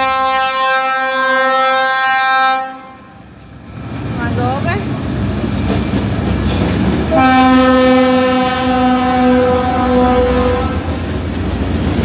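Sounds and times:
train horn blast: 0.0s - 3.2s, 7.1s - 11.0s
passing train rumble: 0.0s - 12.0s.

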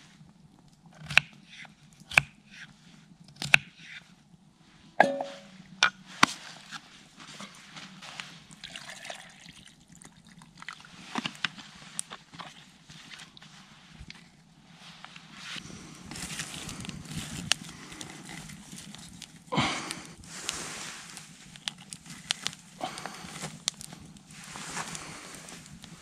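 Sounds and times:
metallic cookware clink: 5.0s - 5.5s.

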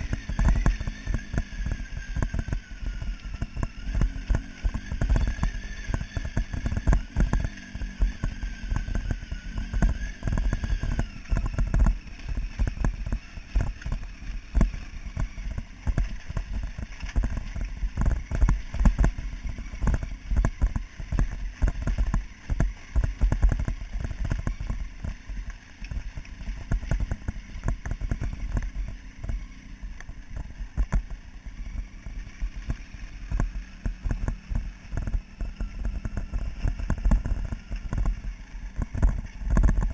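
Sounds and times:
knocks and jolts over gravel: 0.0s - 39.9s
motorcycle engine rumble: 0.0s - 39.9s.

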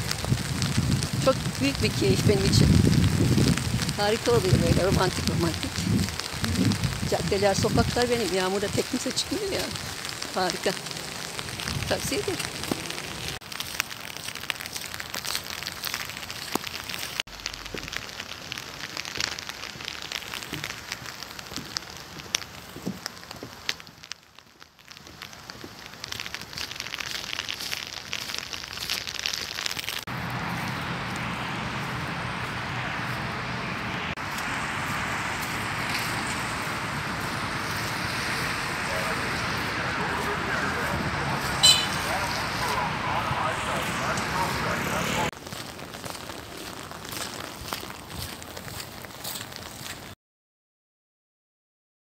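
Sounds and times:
rain falling on an umbrella: 0.0s - 50.2s.

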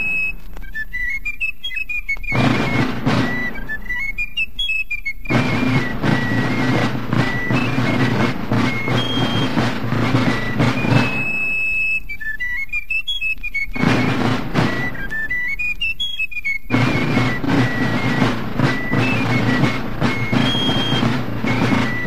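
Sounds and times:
rapid field drum drumming: 0.0s - 0.5s, 2.2s - 4.3s, 5.2s - 12.1s, 13.6s - 15.8s, 16.6s - 22.0s
fife melody: 0.0s - 22.0s.

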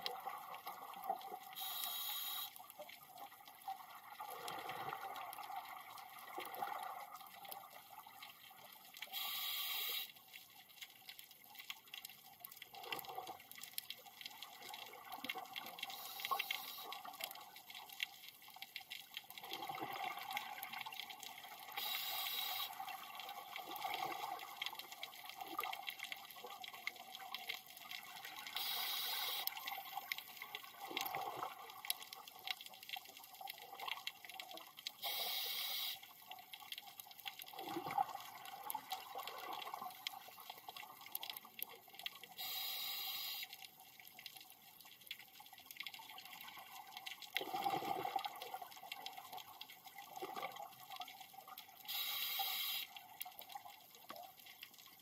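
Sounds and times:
breath hissing through regulator: 9.1s - 10.1s, 21.8s - 22.8s, 28.6s - 29.5s, 35.0s - 36.0s, 42.4s - 43.4s, 51.9s - 52.9s
bubbling exhaled air underwater: 47.4s - 48.7s.

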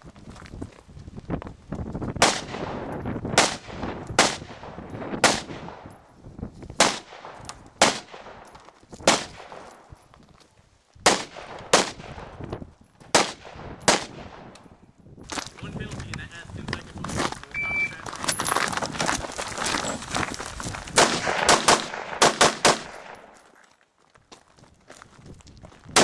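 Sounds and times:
rifle shots with echo: 2.2s - 5.9s, 6.8s - 9.9s, 11.0s - 12.4s, 13.1s - 14.6s, 21.0s - 23.4s.

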